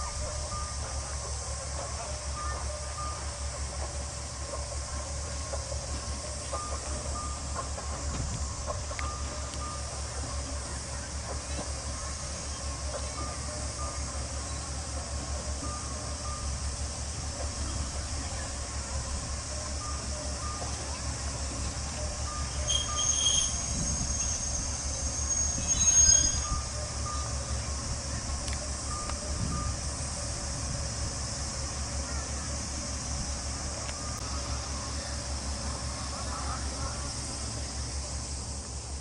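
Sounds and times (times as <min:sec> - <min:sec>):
diesel engine idling rumble: 0:00.0 - 0:39.0
high shrill tone: 0:22.4 - 0:26.8.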